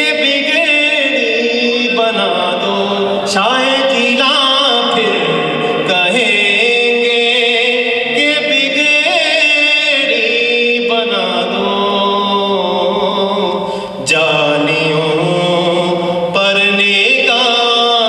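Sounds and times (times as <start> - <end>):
man chanting: 0.0 - 18.0.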